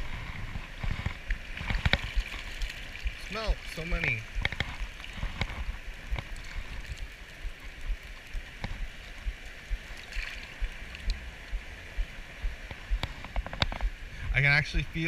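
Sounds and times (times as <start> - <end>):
stream water rippling: 0.0 - 15.0
net splashing into water: 9.8 - 10.8.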